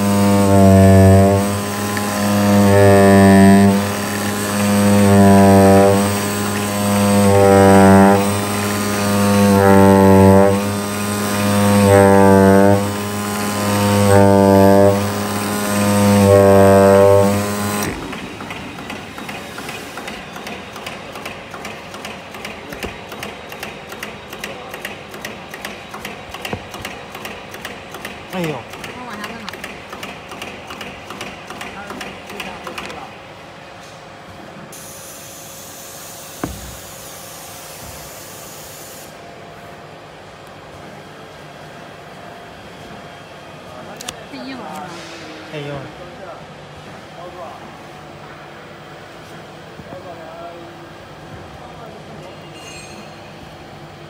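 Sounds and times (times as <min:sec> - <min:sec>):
cutting machine drone: 0:00.0 - 0:21.3.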